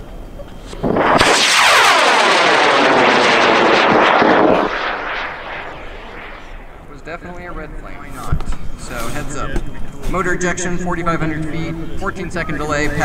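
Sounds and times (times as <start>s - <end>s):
rocket motor roaring: 0.7s - 7.0s.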